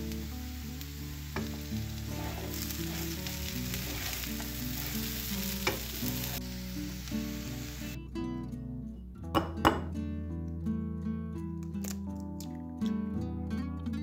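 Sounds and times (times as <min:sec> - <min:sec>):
food sizzling in a frying pan: 0:00.0 - 0:08.0
wooden spatula scraping a pan: 0:01.4 - 0:06.4.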